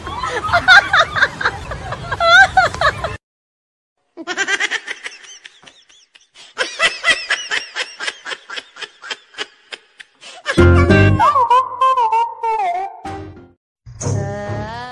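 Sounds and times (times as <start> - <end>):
high-pitched laughter: 4.2 - 12.6.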